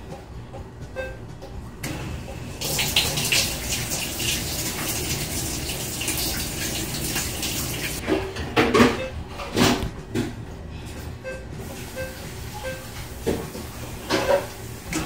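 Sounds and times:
water rushing into a washer: 2.6s - 8.0s.

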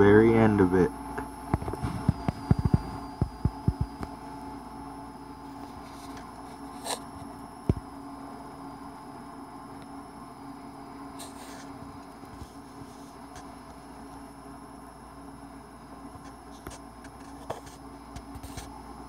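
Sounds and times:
electrical hum: 0.0s - 19.0s.

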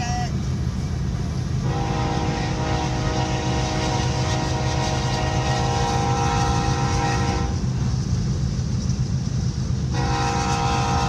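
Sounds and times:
locomotive air horn chord: 1.6s - 7.6s, 9.9s - 11.0s.

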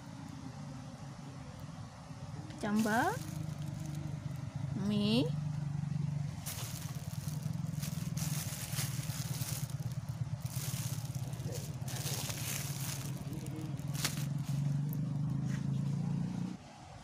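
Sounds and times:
low engine hum: 0.0s - 17.0s
plastic packets crinkling: 2.7s - 4.4s, 6.4s - 15.1s.

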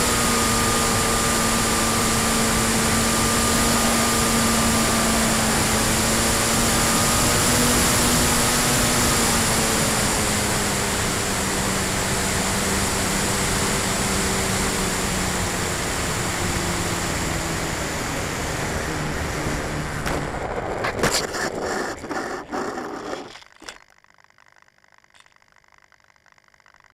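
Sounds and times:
electric motor whine: 0.0s - 26.9s
wheels rattling on pavement: 18.9s - 23.8s.

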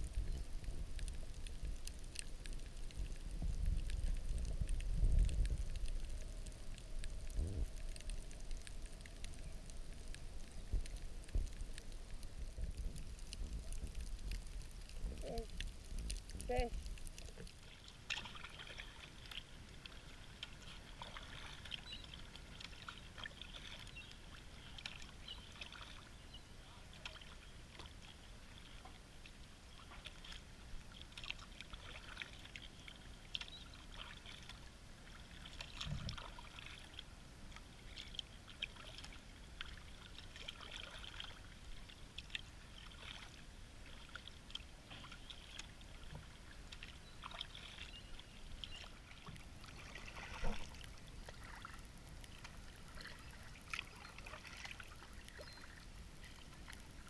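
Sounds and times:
paddle dripping and splashing: 0.0s - 57.0s.

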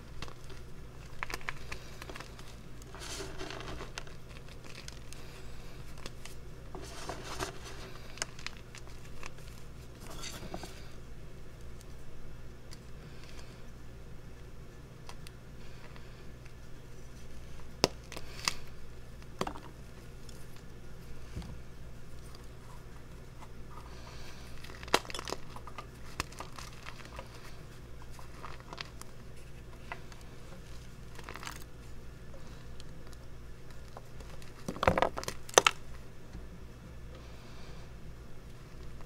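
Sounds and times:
chalk crunching and crackling: 0.0s - 10.9s, 22.1s - 32.8s.

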